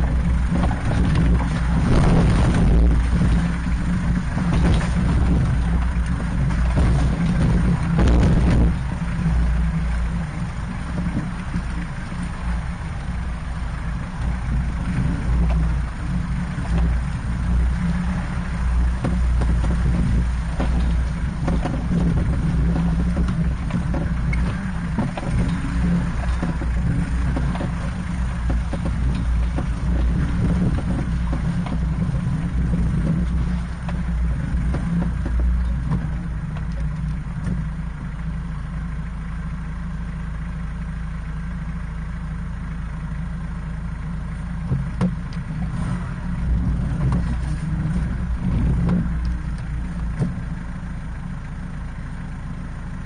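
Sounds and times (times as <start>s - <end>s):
vehicle body knocks and jolts: 0.0s - 37.7s, 44.6s - 51.0s
vehicle engine droning: 0.0s - 53.0s
water sloshing around tyres: 0.0s - 53.0s.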